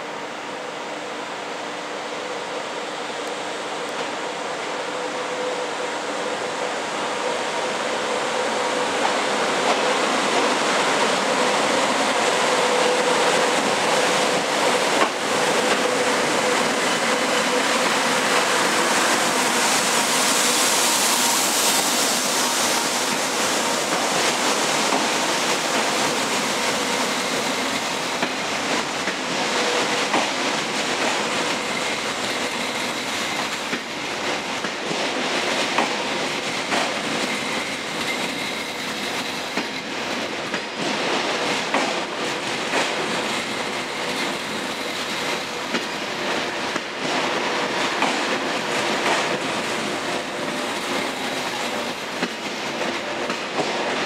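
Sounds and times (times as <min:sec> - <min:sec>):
train rolling past: 0:00.0 - 0:54.0.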